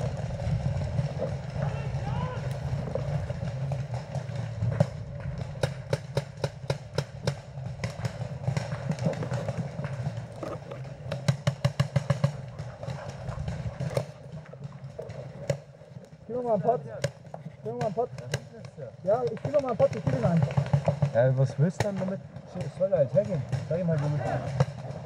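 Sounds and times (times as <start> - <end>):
low rumble: 0.0 - 11.5
paintball markers firing: 16.4 - 25.0.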